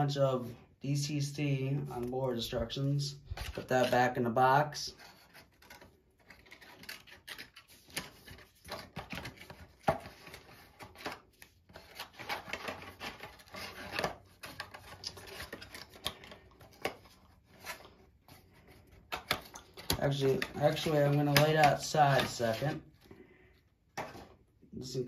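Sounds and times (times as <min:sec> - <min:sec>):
packaging and paper rustling: 0:04.9 - 0:23.1.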